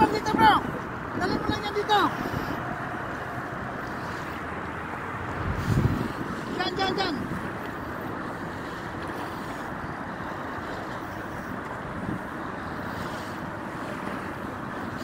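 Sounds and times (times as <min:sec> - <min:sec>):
small waves lapping: 0:00.0 - 0:15.0
wind buffeting microphone: 0:00.0 - 0:15.0.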